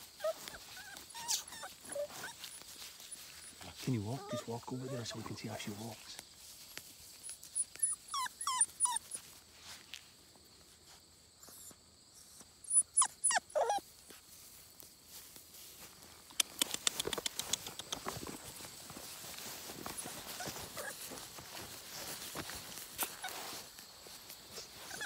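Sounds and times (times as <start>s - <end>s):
footsteps in grass: 0.0s - 11.1s, 13.8s - 25.0s
puppy whimpering: 0.2s - 2.6s, 4.1s - 5.1s, 7.6s - 9.2s, 11.4s - 13.8s, 20.3s - 21.0s.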